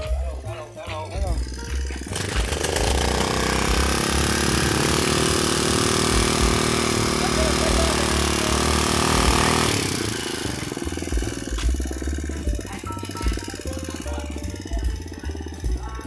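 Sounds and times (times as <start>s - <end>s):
small vehicle engine droning: 0.0s - 16.0s.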